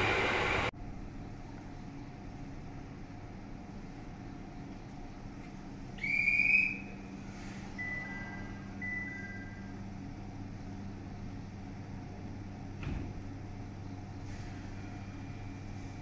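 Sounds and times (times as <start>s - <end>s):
electric trains humming: 0.0s - 16.0s
loud high whistle: 6.0s - 7.0s.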